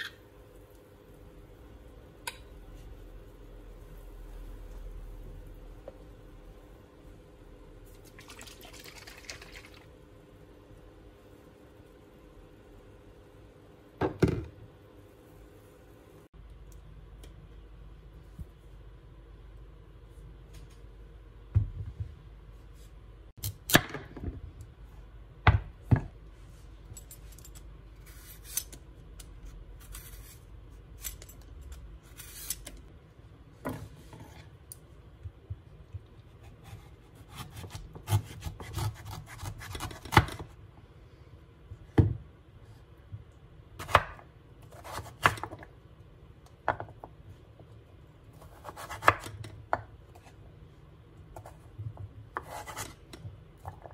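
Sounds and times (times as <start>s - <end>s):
knife scraping: 28.0s - 28.8s, 29.8s - 32.8s, 52.4s - 53.0s.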